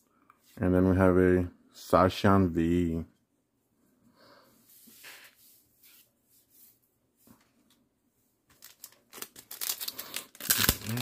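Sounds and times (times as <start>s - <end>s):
faint handling sounds: 3.1s - 11.0s
foil pack crinkling and tearing: 8.6s - 11.0s.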